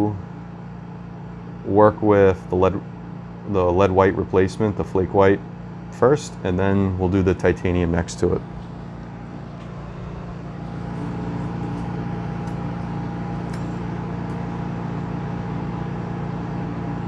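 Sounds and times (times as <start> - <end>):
mechanical hum: 0.0 - 17.0
high whine: 6.0 - 17.0.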